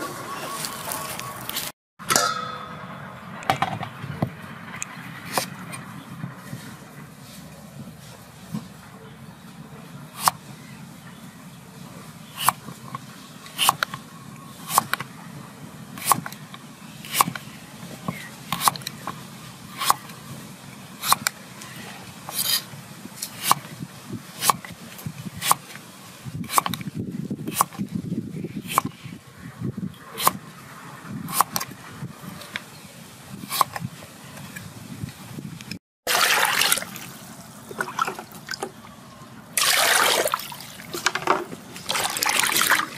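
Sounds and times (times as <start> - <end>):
water splashing in metal bowl: 36.1 - 38.6, 39.6 - 40.9, 41.8 - 42.9.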